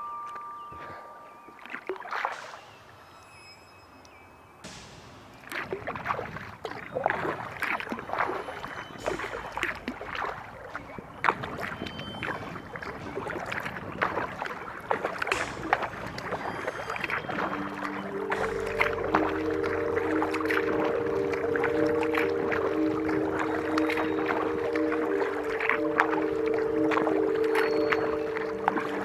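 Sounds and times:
water splashing and dripping: 0.2s - 3.4s, 4.0s - 29.0s
kayak paddle strokes in water: 4.6s - 29.0s.

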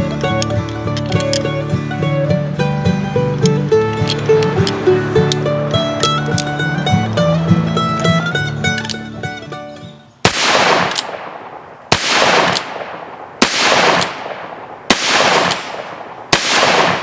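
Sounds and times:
revolver shots: 10.3s - 17.0s.

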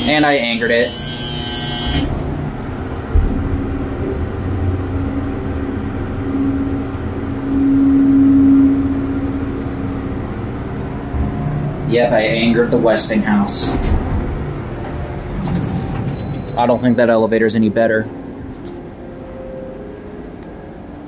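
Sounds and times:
elevator machinery hum: 0.0s - 21.0s
elevator clunk: 11.0s - 17.2s.

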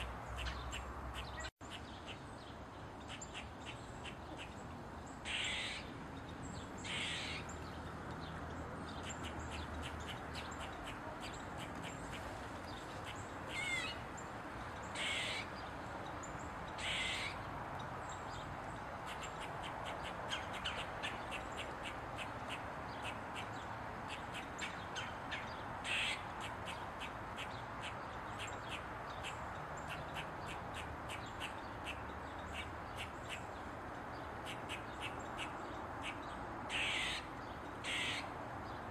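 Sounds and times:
squirrel squawking calls: 0.0s - 2.2s, 3.1s - 4.6s, 5.2s - 5.9s, 6.8s - 7.6s, 9.0s - 12.3s, 13.0s - 14.2s, 14.9s - 15.6s, 16.7s - 17.4s, 19.0s - 33.6s, 34.4s - 38.4s
squirrel barking: 5.2s - 5.9s, 6.8s - 7.5s, 9.0s - 12.2s, 13.0s - 14.0s, 14.9s - 15.6s, 16.7s - 17.4s, 19.0s - 33.6s, 34.4s - 38.3s.

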